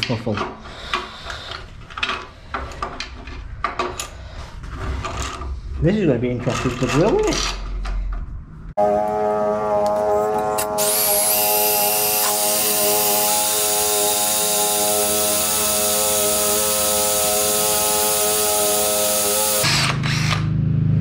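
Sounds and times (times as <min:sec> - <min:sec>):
drill cutting through steel: 0:10.6 - 0:20.4.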